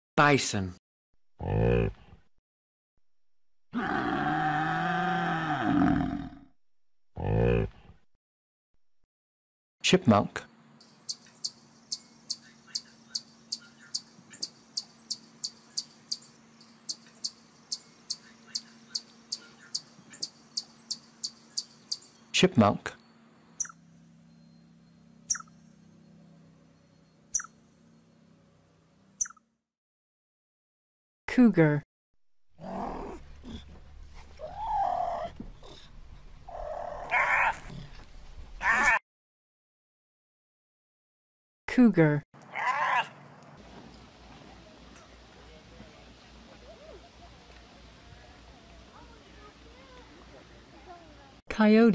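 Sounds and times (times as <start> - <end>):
chipmunk chirping: 10.9 - 22.2, 23.6 - 23.8, 25.2 - 25.6, 27.3 - 27.6, 29.2 - 29.4
cougar calling: 34.4 - 35.8, 36.5 - 38.0, 38.6 - 39.0, 42.5 - 43.1.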